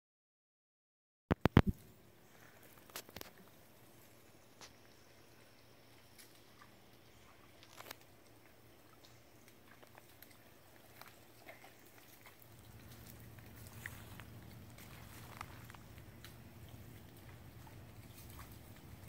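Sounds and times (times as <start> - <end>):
soft ticks and rustles: 1.3 - 19.0
low hum: 12.2 - 19.0.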